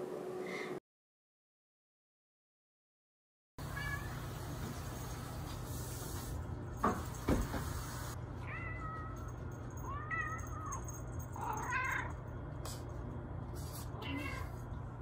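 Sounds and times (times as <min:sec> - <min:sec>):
cat meowing: 0:03.7 - 0:04.2, 0:14.0 - 0:14.6.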